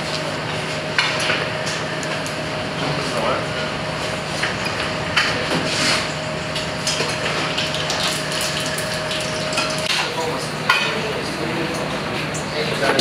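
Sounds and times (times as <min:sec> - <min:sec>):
steady hum: 0:00.0 - 0:13.0
utensils and steel trays clattering: 0:04.4 - 0:13.0.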